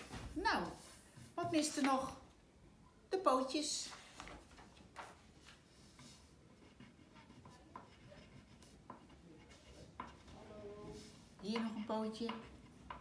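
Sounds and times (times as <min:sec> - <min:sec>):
pencil scratching on paper: 0:00.1 - 0:01.8, 0:05.0 - 0:13.0.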